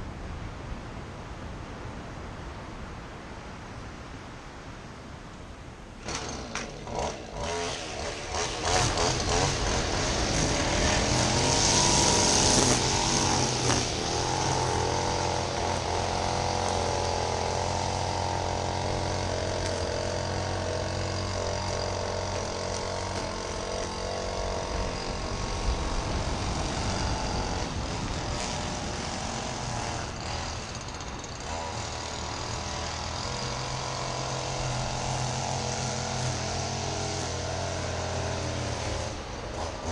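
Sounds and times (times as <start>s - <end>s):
pull-start cord: 6.0s - 7.4s
lawn mower engine running: 6.0s - 39.9s.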